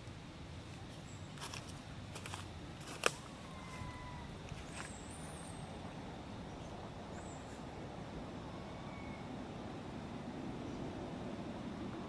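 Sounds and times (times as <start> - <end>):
outdoor background rumble: 0.0 - 12.0
faint high chirps: 8.5 - 9.4
faint thin whistle: 8.6 - 9.3.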